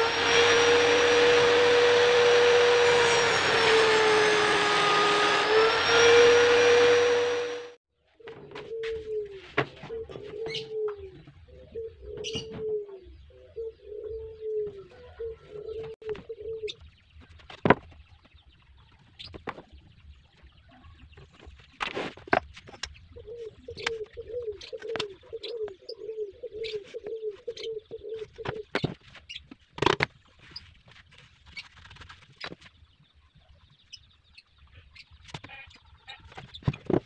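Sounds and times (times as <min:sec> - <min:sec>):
dove cooing: 0:08.2 - 0:16.8, 0:23.1 - 0:28.8.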